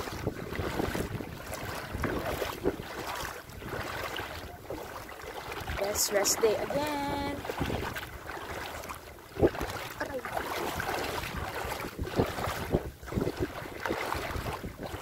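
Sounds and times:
people wading through seawater: 0.0 - 15.0
wind buffeting microphone: 0.0 - 15.0.

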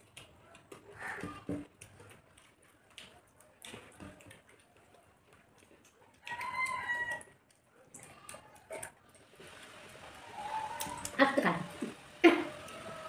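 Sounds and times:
hands eating from plates: 0.0 - 11.2
rooster crowing: 6.2 - 7.3.

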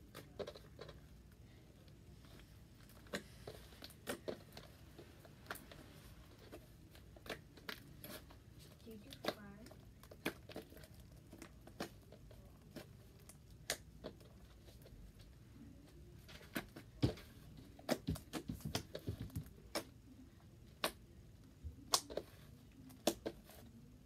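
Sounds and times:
fingers squeezing slime: 9.1 - 14.3.

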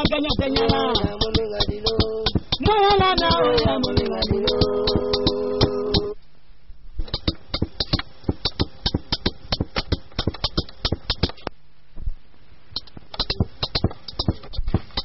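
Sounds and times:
percussion sharp strokes: 0.0 - 6.2.

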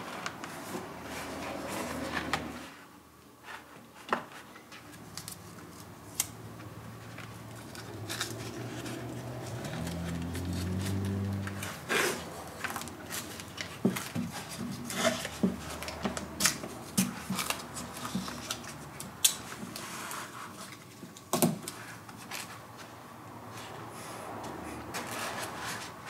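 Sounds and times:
tape rustling and clicking: 4.1 - 23.0
tape ripping: 7.6 - 13.7.

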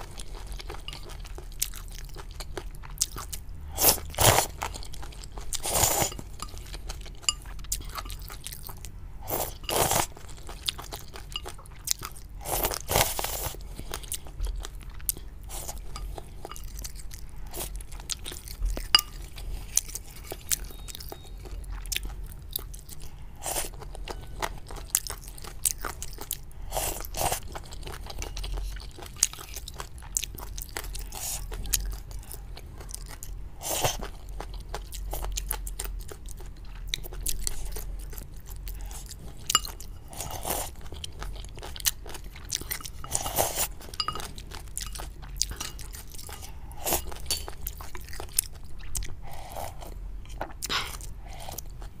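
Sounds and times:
chewing and slurping: 0.0 - 52.0
chopsticks and spoon clicking bowl: 18.9 - 19.2, 44.0 - 45.9.

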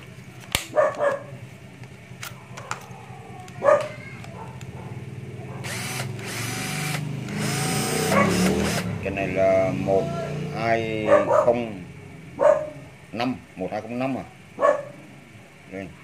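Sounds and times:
dog barking: 0.7 - 1.4, 2.4 - 5.7, 8.0 - 8.5, 11.0 - 11.7, 12.4 - 13.0, 14.2 - 15.0
cordless drill motor whirring: 5.6 - 8.9.

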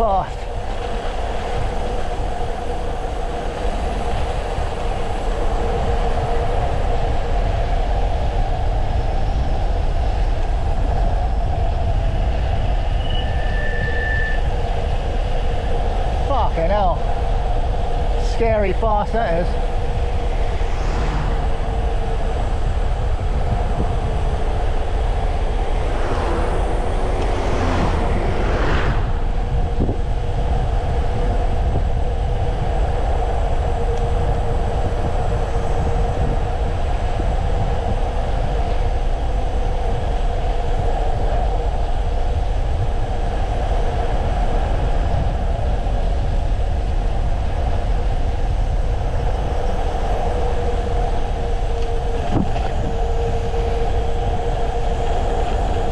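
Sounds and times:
bicycle tyre hum: 0.0 - 55.9
steady whine: 0.0 - 55.9
wind buffeting microphone: 0.0 - 55.9
heavy low rumble: 14.4 - 55.9.

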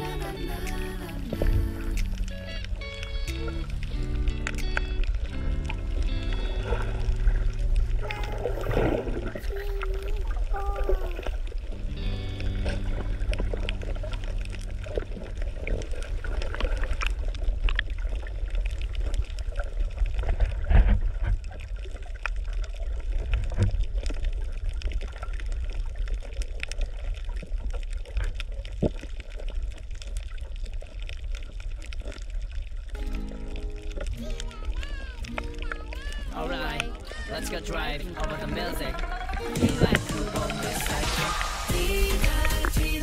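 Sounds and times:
steady low rumble: 0.0 - 26.1
water sloshing and trickling: 0.0 - 42.7.

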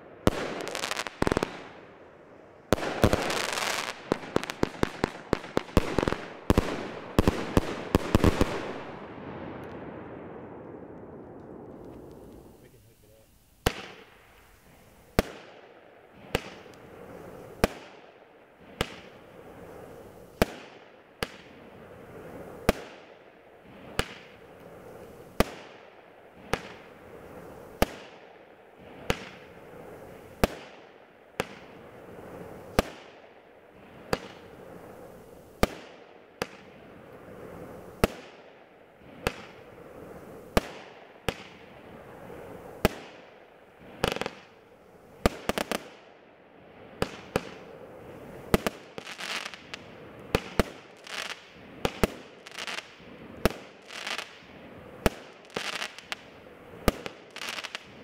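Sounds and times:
firework bangs: 0.0 - 2.0, 2.7 - 12.9, 13.6 - 18.0, 39.0 - 44.6, 47.0 - 58.0.

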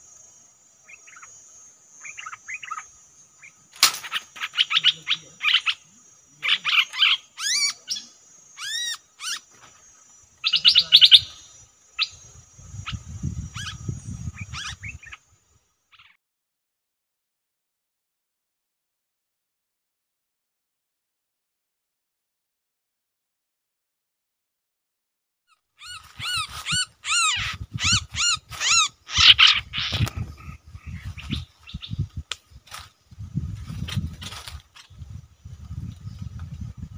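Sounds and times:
songbirds chirping and trilling: 0.0 - 16.2, 25.8 - 36.9
bird calling: 0.8 - 15.3, 15.9 - 16.2, 25.8 - 32.0
harsh rasping bird calls: 0.8 - 15.3, 15.9 - 16.2, 25.8 - 32.0.

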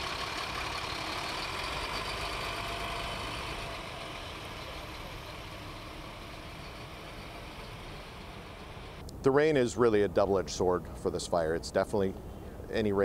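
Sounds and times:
fire engine driving away: 0.0 - 9.0.

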